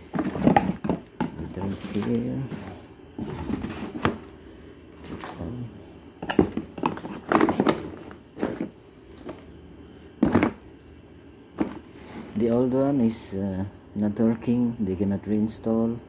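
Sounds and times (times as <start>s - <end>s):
cardboard and cable knocks and rustles: 0.1s - 4.3s, 6.2s - 9.4s, 10.2s - 10.6s, 11.6s - 11.9s.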